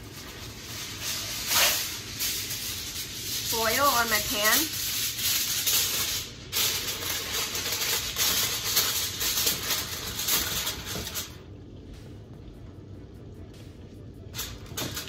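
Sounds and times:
aluminium foil crinkling: 0.0 - 11.5, 14.3 - 15.0.

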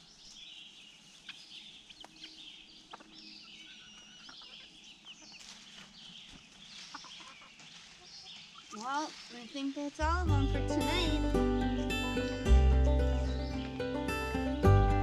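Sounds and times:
birdsong: 0.0 - 15.0
hens clucking: 1.1 - 9.2.

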